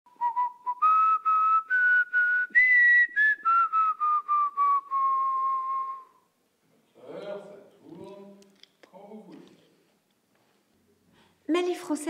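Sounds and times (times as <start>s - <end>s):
person whistling a tune: 0.1s - 6.3s.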